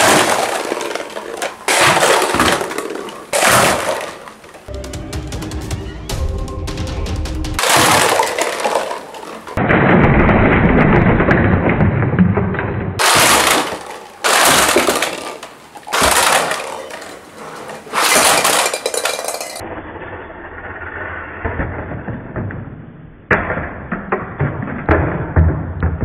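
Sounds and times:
plastic buckets clattering on wooden floor: 0.0s - 4.7s, 7.6s - 9.6s, 13.0s - 19.6s
toy cars crashing into plastic buckets: 0.0s - 4.7s, 7.6s - 19.6s.

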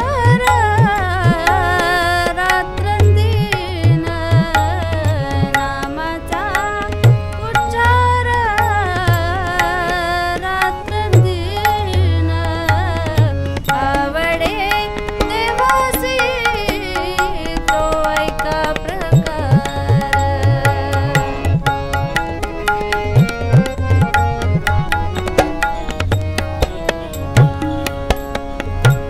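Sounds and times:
woman singing: 0.0s - 22.2s
harmonium: 0.0s - 29.0s
tabla drums: 0.0s - 29.0s.

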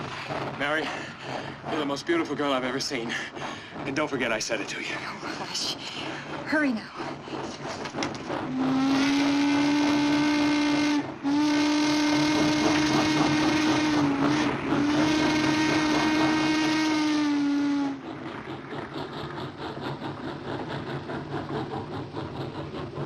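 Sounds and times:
train chuffing: 0.0s - 23.0s
steam locomotive whistle: 8.3s - 18.2s.

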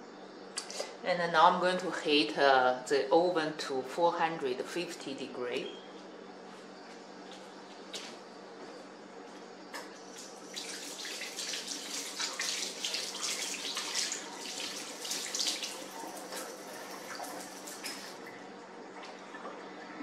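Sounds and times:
tap water splashing into sink: 10.2s - 18.2s.

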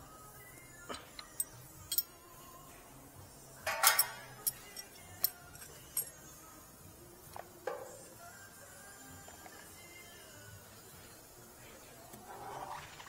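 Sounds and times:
metal tools clinking on brake caliper: 1.1s - 2.1s, 3.6s - 6.2s.

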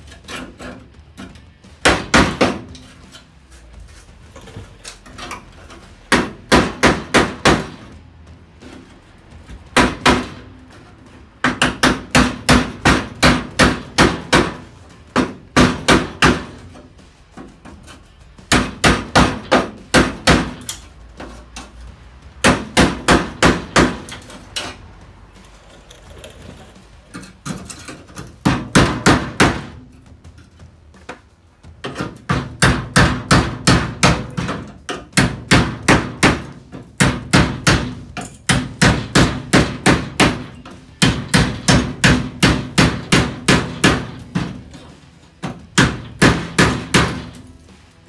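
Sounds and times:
hammer striking chisel on metal: 31.8s - 44.8s, 45.4s - 47.4s.

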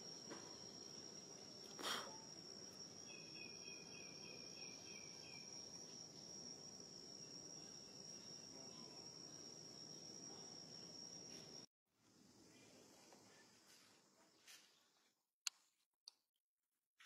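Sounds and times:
high-pitched insect drone: 0.0s - 11.7s.

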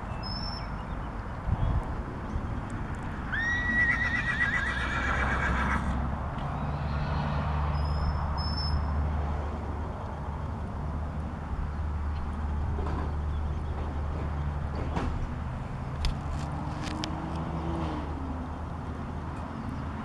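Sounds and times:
horse whinnying: 3.3s - 6.0s.

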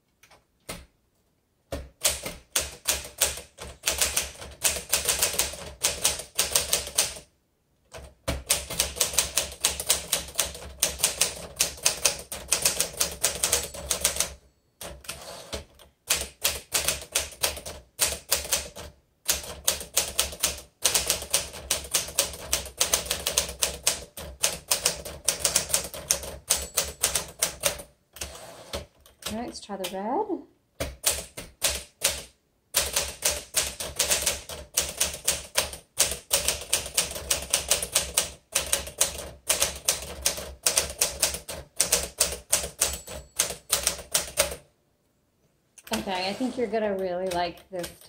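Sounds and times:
typewriter keystrokes clacking: 30.8s - 44.6s.

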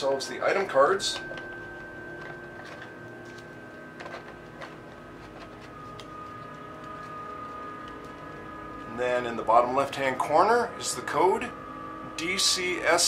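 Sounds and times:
faint steady drone: 0.0s - 13.0s
game cards clicking and rustling: 2.1s - 8.2s.

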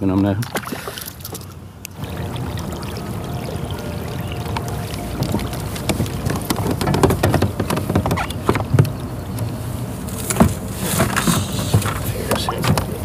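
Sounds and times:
knocks and clunks on plastic kayak: 4.3s - 9.5s, 10.2s - 13.0s.

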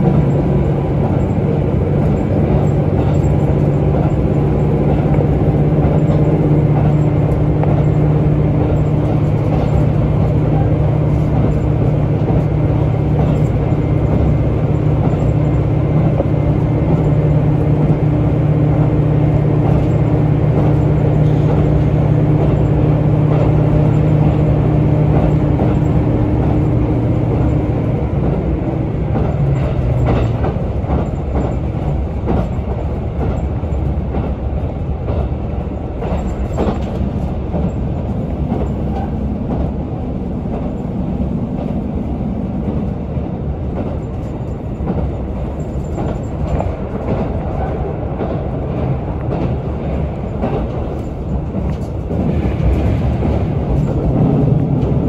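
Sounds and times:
diesel engine droning: 0.0s - 33.9s
clacks over rail joints: 0.0s - 55.0s
wheels rumbling on rail: 0.0s - 55.0s.

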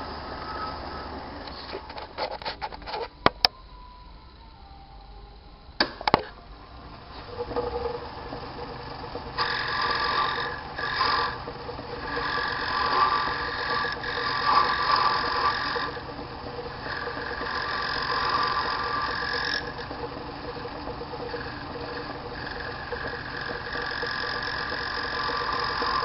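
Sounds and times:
lathe humming: 0.0s - 26.0s
blade scraping bone: 9.4s - 26.0s.

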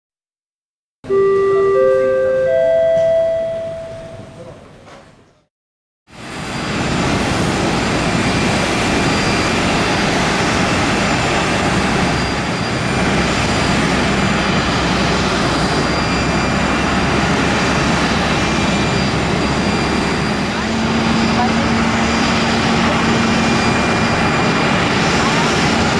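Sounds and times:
jet turbine roar with whine: 6.1s - 25.9s.

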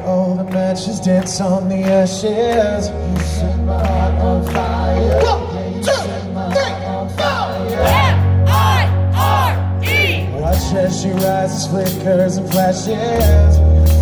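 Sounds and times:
person singing: 0.0s - 14.0s
rock band playing: 7.1s - 14.0s.

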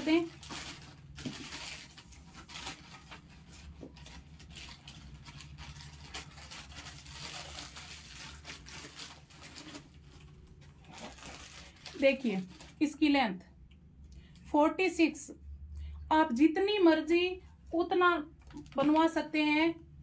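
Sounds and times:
fabric rustling and crinkling: 0.0s - 13.0s
low steady hum: 0.0s - 20.0s.

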